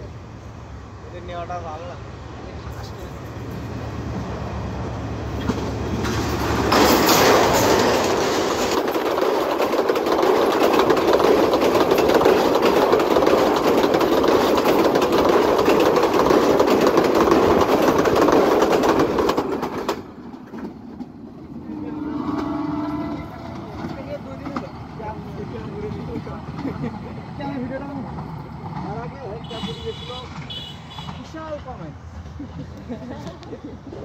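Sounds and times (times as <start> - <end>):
train coaches rushing past: 0.0 - 34.0
train engine hum: 0.0 - 34.0
wheels clattering over rails: 5.3 - 21.6, 23.2 - 33.8.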